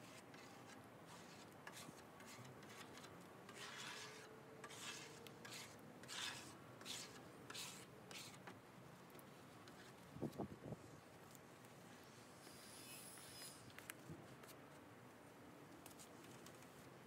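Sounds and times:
scraper scraping sludge off wood: 0.3 - 8.4.

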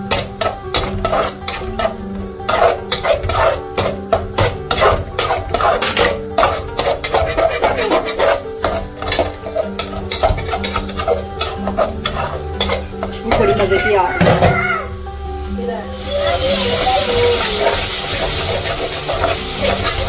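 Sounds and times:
spatula scraping a cooking pan: 0.0 - 14.0, 16.0 - 20.0
background music with held notes: 0.0 - 20.0.

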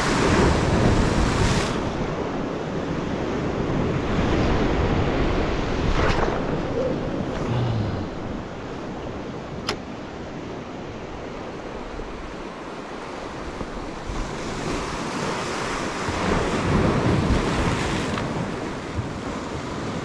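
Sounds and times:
wind on microphone: 0.0 - 9.6, 13.3 - 20.0
surf washing among rocks: 0.0 - 20.0
sharp click: 9.6 - 9.8.

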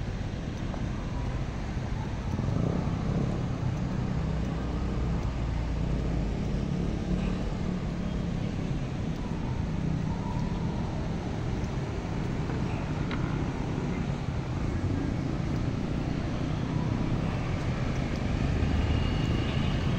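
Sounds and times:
road traffic rumble: 0.0 - 19.9.

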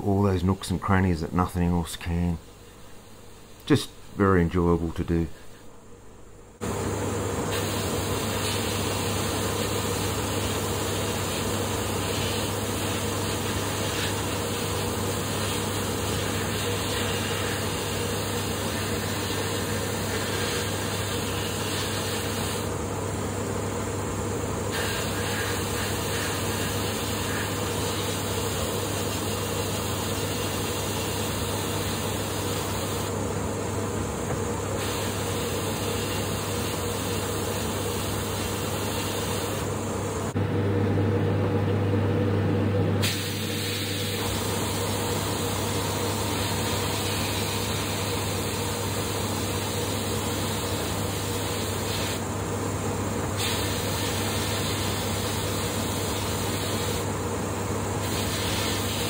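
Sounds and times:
air compressor humming: 5.3 - 59.0
hiss of sandblasting grit: 7.5 - 22.7, 24.7 - 33.1, 34.8 - 39.9, 43.0 - 52.2, 53.4 - 57.1, 58.0 - 59.0.

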